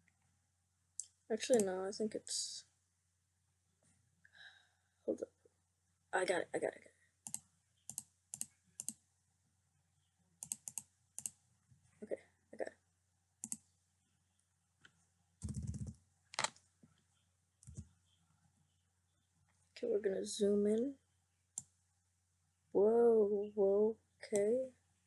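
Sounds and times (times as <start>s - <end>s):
mouse and keyboard clicks: 10.4s - 11.4s, 15.4s - 16.6s, 17.6s - 17.9s.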